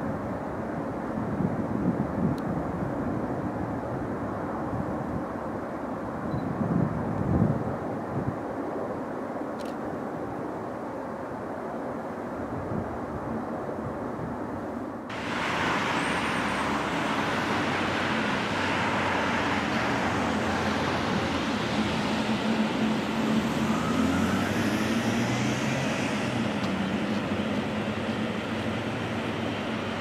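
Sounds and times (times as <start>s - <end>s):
jet engines whining at low power: 14.9s - 30.0s
distant jet rumble: 15.1s - 30.0s.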